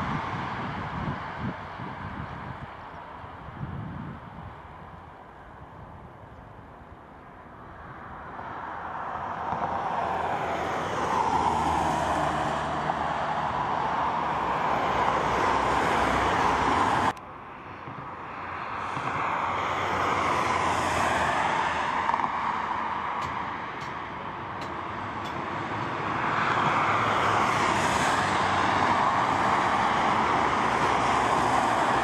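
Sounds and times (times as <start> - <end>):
jet engines at takeoff power: 0.0 - 32.0.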